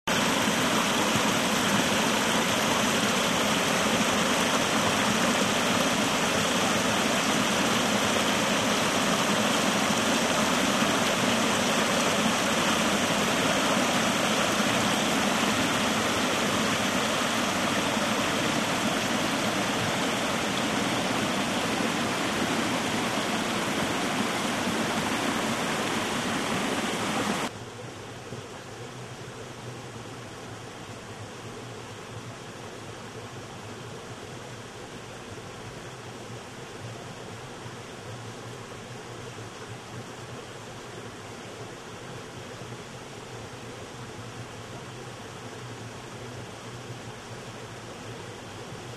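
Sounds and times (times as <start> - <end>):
brook splashing over rocks: 0.1 - 27.5.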